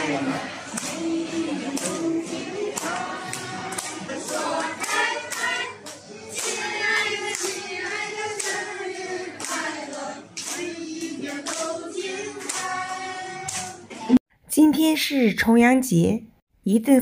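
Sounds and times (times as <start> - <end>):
group singing: 0.0 - 14.2
hands clapping: 0.7 - 2.0, 2.7 - 8.7, 9.4 - 14.0.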